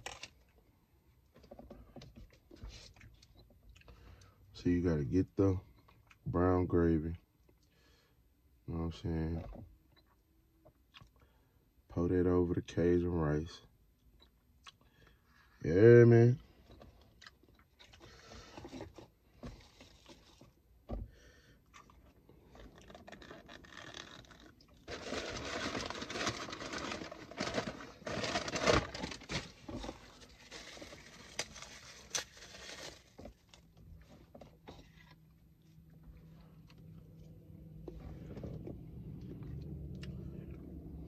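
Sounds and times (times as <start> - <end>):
plastic packaging rustling: 22.5 - 34.2.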